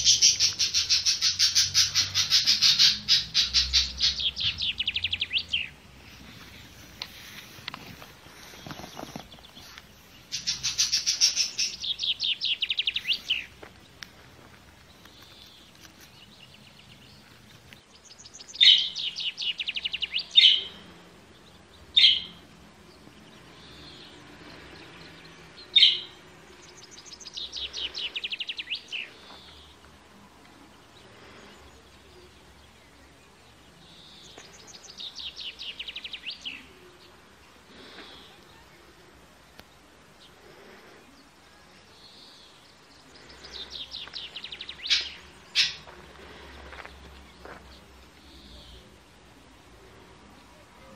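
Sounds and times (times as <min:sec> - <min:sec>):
budgerigars trilled chirping: 0:00.0 - 0:05.7, 0:10.3 - 0:13.5, 0:43.2 - 0:46.0.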